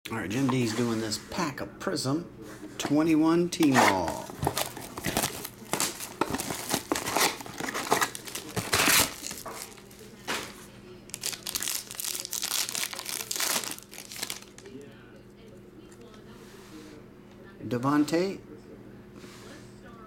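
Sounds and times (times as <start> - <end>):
plastic and foil crinkling: 3.7 - 14.8.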